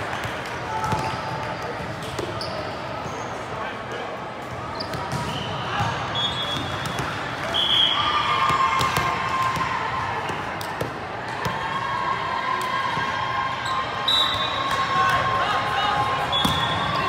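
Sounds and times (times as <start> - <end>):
volleyballs being hit and bouncing: 0.0 - 2.4, 4.8 - 7.5, 8.4 - 11.8
hubbub of voices: 0.0 - 17.0.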